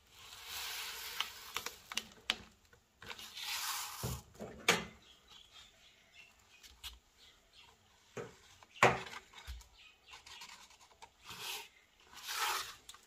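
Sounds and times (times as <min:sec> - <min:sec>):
marker pen scratching on floor: 0:11.2 - 0:12.8.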